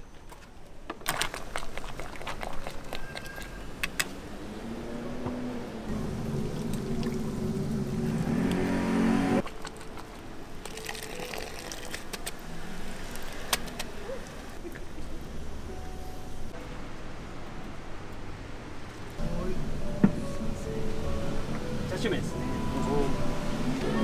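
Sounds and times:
vehicle engine humming: 3.5s - 10.8s, 12.2s - 24.0s
water swishing: 5.9s - 14.6s.

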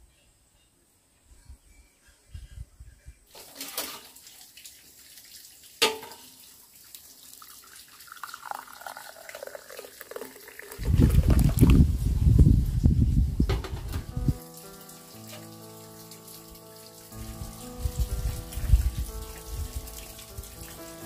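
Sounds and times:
tea pouring into glass cup: 7.4s - 12.0s.

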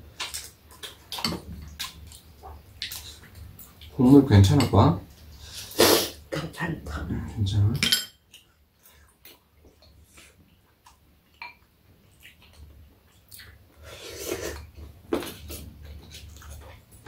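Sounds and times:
chewing: 8.3s - 13.6s, 14.2s - 17.0s.

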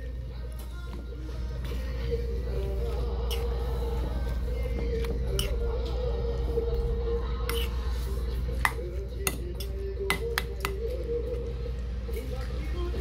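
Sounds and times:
quiet background music: 0.0s - 13.0s.

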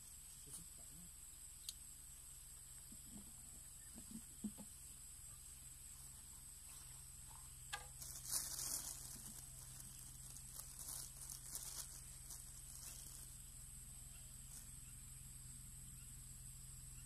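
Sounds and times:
steady high hiss: 0.0s - 17.0s
rustling and scuffing in grass: 5.9s - 13.6s.

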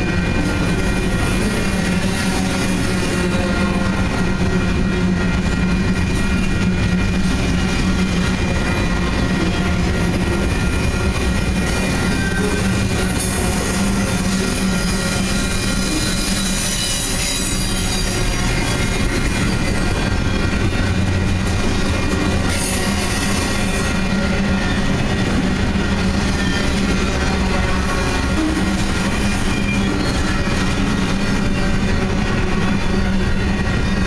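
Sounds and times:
train wheels rumbling on rails: 0.0s - 34.0s
high wheel squealing: 8.5s - 34.0s.

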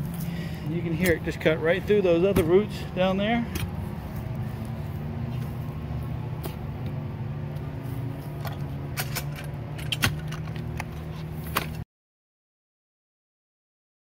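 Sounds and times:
engine idling: 0.0s - 11.6s.

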